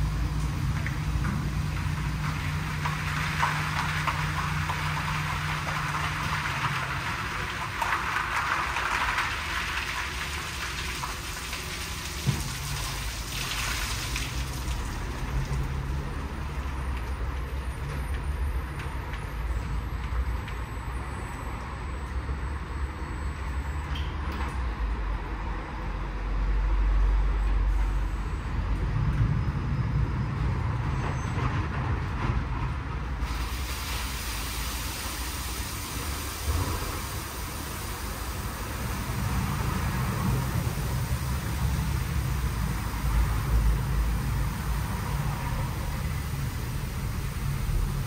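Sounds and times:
water jets spraying: 0.0 - 16.7, 33.2 - 48.0
low hum of pumps: 0.0 - 19.2, 31.8 - 48.0.

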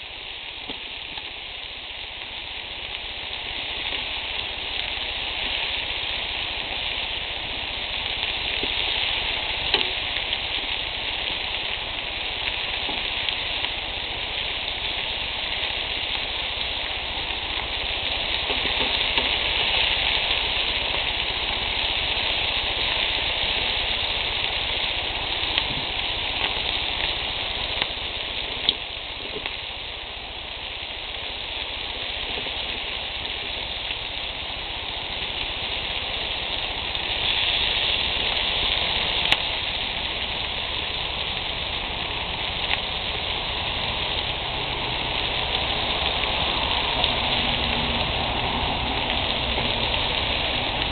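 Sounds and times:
bacon sizzling on a grill: 0.0 - 50.9
fat popping: 18.2 - 19.8.

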